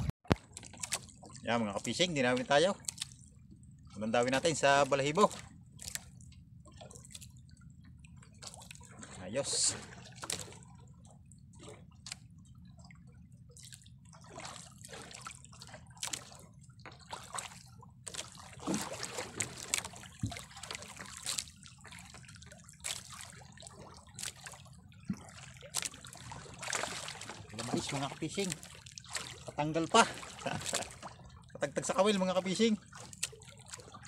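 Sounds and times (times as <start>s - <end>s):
low steady hum: 0.0s - 34.0s
water lapping against boat: 0.0s - 34.0s.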